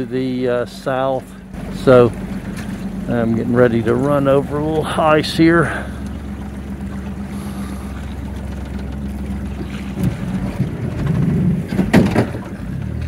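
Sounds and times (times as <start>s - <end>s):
outboard motor running: 0.0s - 13.0s
hull scraping over ice: 0.7s - 13.0s
loud bump: 9.8s - 12.6s.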